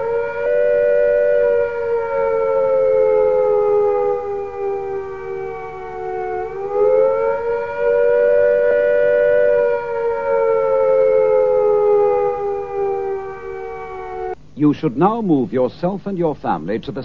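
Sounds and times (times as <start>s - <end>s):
warning siren wailing: 0.0s - 14.4s.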